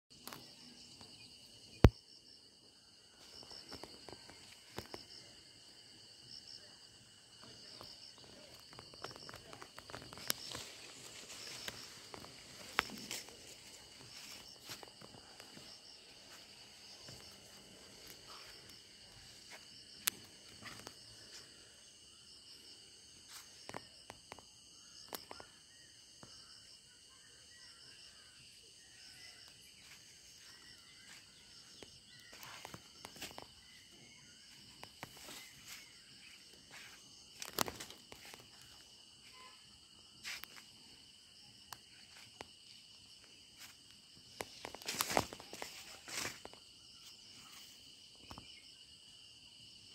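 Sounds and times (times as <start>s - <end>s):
insects chirring: 0.1s - 49.9s
footsteps on soil: 8.5s - 21.6s, 44.4s - 46.6s.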